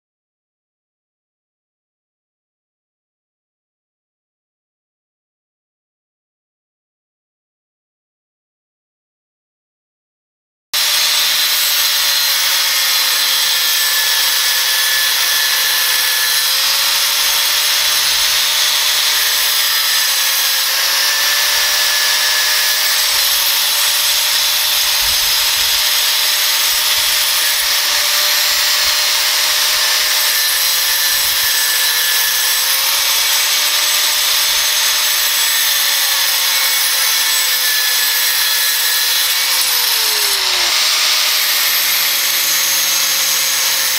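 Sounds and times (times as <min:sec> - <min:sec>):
angle grinder cutting steel: 0:10.8 - 0:43.9.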